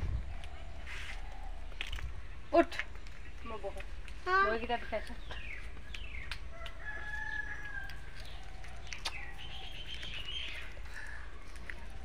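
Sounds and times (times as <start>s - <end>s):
rooster crowing: 6.5s - 8.1s.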